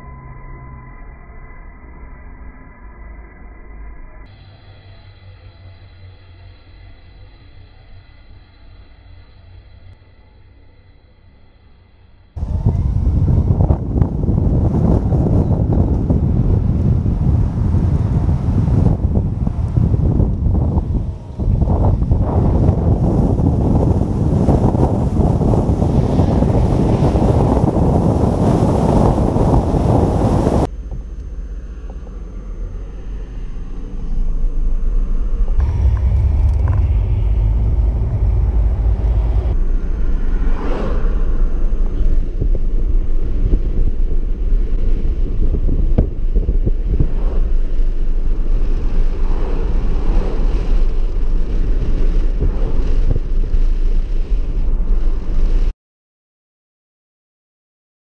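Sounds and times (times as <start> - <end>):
wind buffeting a microphone: 12.4 - 30.7, 35.6 - 55.7
road and tyre rumble: 12.4 - 55.7.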